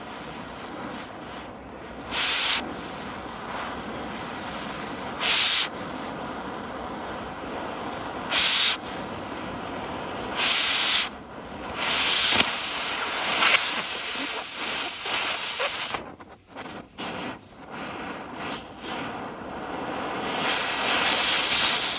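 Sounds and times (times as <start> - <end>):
cutting torch hissing: 0.0 - 21.9.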